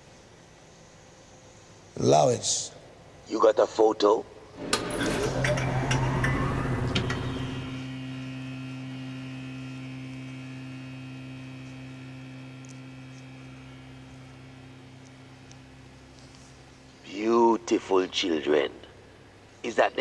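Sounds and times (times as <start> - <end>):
steady low hum: 0.0 - 20.0
faint steady high tones: 4.6 - 18.7.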